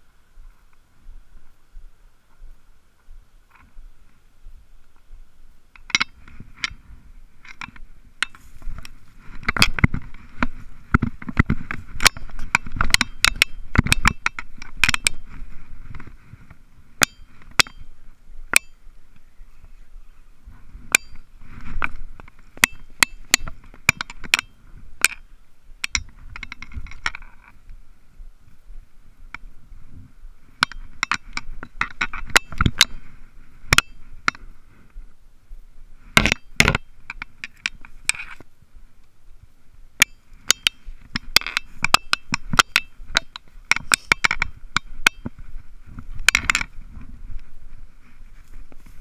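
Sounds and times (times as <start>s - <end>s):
footsteps through dry brush: 0.0s - 12.9s, 14.4s - 23.9s, 42.4s - 49.0s
sharp clicks and clinks: 7.4s - 15.3s, 25.8s - 27.6s, 40.0s - 45.4s
scraping: 36.0s - 38.5s.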